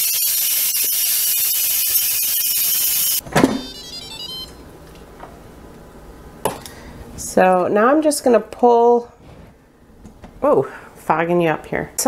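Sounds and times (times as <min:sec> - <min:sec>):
pressure cooker venting steam: 0:00.0 - 0:03.2.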